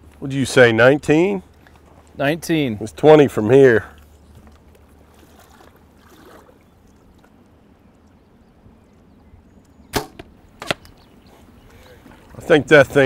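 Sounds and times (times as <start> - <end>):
flowing river: 1.5 - 8.8, 11.6 - 13.0.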